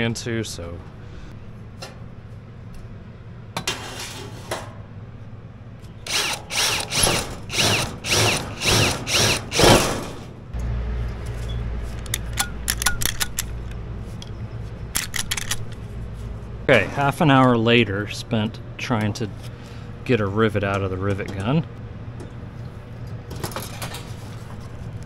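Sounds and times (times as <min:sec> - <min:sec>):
low hum: 0:04.8 - 0:25.0
cordless drill bursts: 0:06.0 - 0:09.9.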